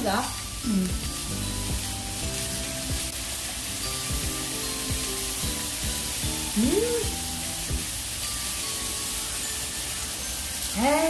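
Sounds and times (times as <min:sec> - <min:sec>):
beef sizzling in a pan: 0:00.0 - 0:11.0
background music with beat: 0:00.6 - 0:08.0.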